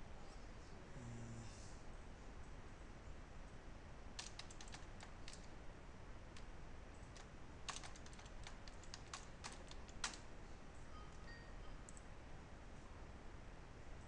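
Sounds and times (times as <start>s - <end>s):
computer keyboard typing: 4.2s - 5.5s, 6.3s - 10.3s.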